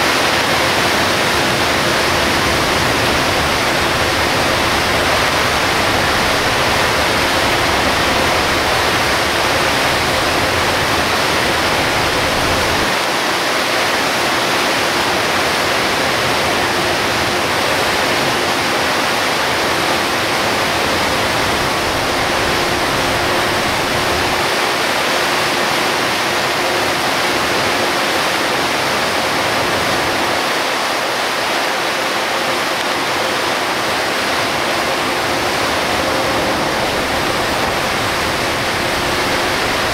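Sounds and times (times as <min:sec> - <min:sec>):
heavy rain and tyre spray hissing: 0:00.0 - 0:39.9
low road rumble: 0:00.1 - 0:13.0.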